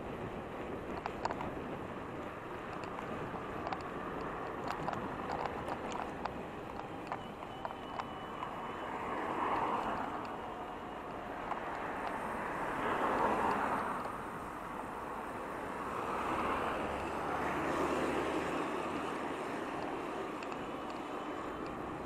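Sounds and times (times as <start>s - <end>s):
road traffic passing: 0.0s - 22.0s.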